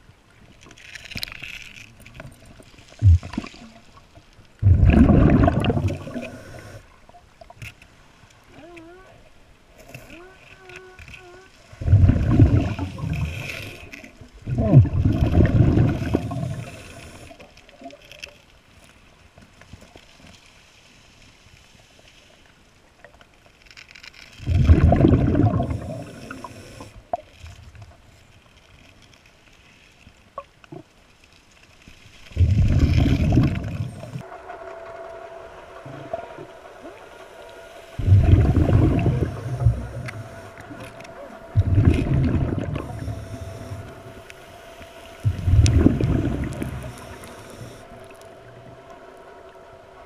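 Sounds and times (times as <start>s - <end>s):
exhaled bubbles bursting: 4.6s - 6.4s, 11.8s - 13.4s, 14.4s - 16.8s, 24.4s - 26.5s, 32.4s - 34.2s, 38.0s - 40.9s, 41.5s - 44.0s, 45.2s - 47.4s
faint clicks: 38.7s - 49.0s.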